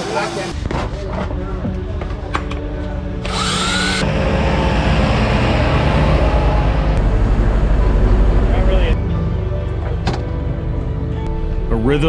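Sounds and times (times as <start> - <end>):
power tool whirring: 3.2 - 7.0.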